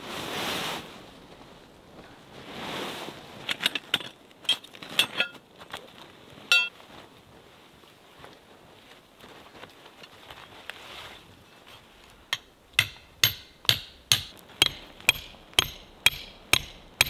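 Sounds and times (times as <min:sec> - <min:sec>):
metal tent stakes clinking: 0:03.4 - 0:05.4, 0:06.5 - 0:06.7, 0:12.3 - 0:17.0.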